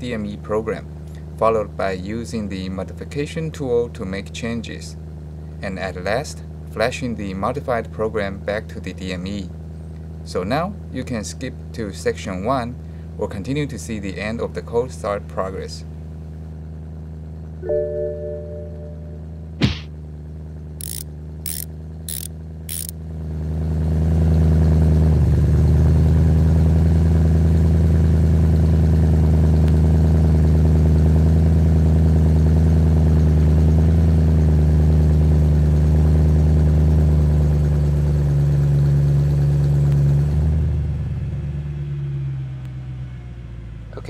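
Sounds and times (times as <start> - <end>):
short clicks: 20.8 - 22.9.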